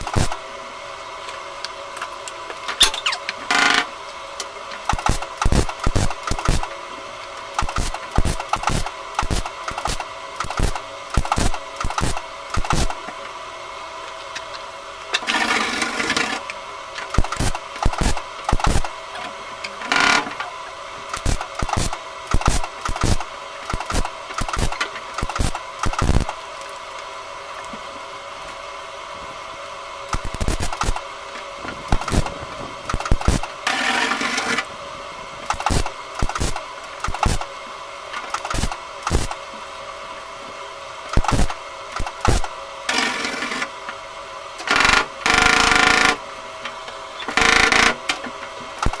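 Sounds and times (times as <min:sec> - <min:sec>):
welder arc crackling: 0:00.0 - 0:00.4, 0:04.8 - 0:06.8, 0:07.4 - 0:13.0, 0:17.0 - 0:19.0, 0:21.1 - 0:27.0, 0:30.1 - 0:31.0, 0:31.9 - 0:34.6, 0:35.4 - 0:37.5, 0:38.3 - 0:39.4, 0:41.2 - 0:42.5, 0:48.8 - 0:49.0.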